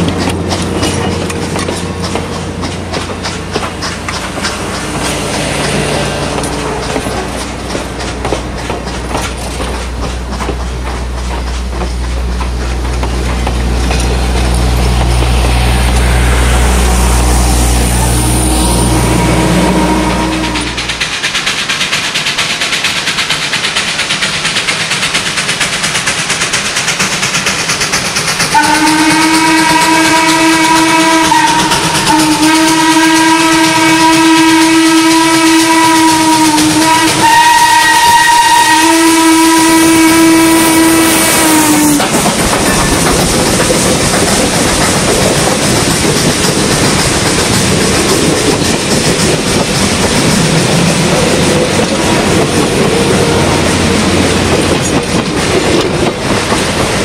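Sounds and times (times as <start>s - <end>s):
steam locomotive running: 0.0s - 57.0s
train wheels clicking over rail joints: 0.0s - 57.0s
deep steam whistle blasts: 16.1s - 21.0s, 28.5s - 42.0s.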